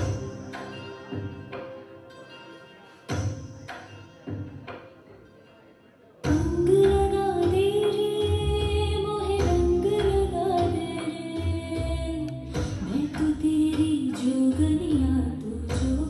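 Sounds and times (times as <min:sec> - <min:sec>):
dance music: 0:00.0 - 0:04.6
woman singing: 0:06.3 - 0:16.0.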